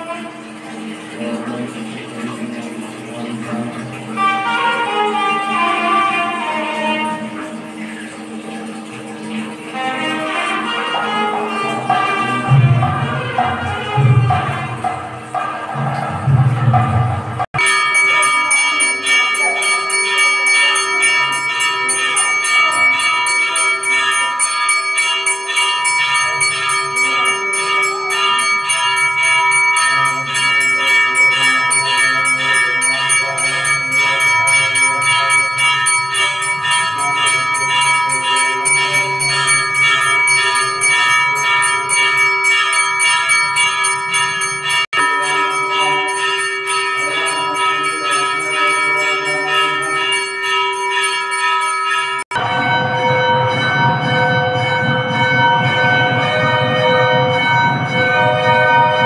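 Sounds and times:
temple bells ringing rapidly: 0.0s - 59.0s.

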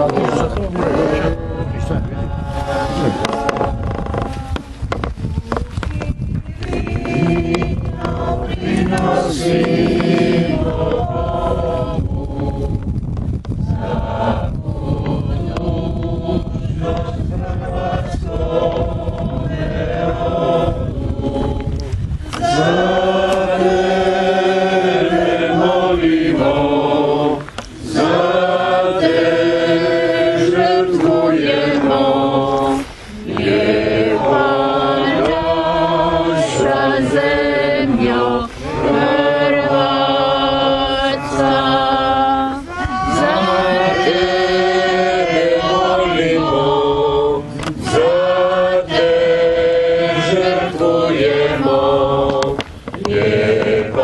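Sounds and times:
congregation singing a hymn: 0.0s - 54.0s.

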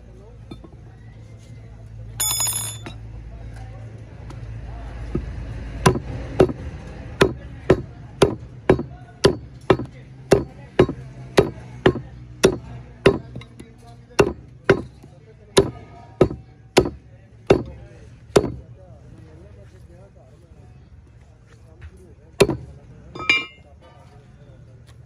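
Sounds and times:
meat cleaver chopping ribs on wood: 5.1s - 17.7s, 18.3s - 18.6s, 22.4s - 22.7s.

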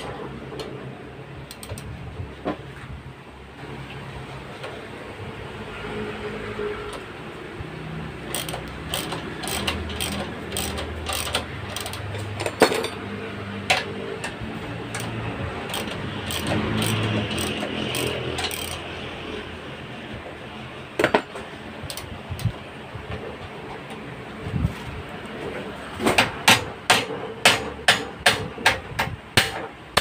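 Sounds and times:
ratchet wrench clicking: 1.5s - 1.9s, 8.3s - 12.6s, 14.9s - 18.9s, 21.9s - 22.5s
sharp metal knocks: 26.1s - 30.0s.

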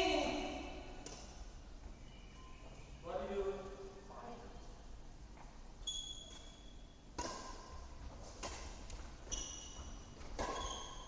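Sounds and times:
shoe squeaks: 1.9s - 3.0s, 5.8s - 7.0s, 9.2s - 11.0s
rackets hitting shuttlecock: 6.3s - 9.5s, 10.1s - 11.0s.

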